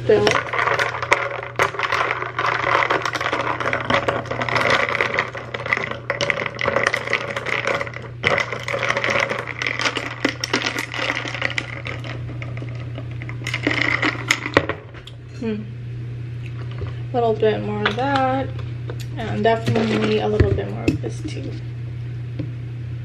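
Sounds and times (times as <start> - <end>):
spoon stirring ice in glass: 0.1 - 14.6.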